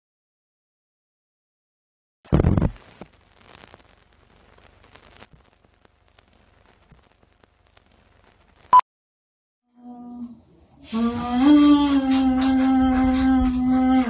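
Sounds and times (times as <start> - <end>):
crackling hiss: 2.3 - 8.8.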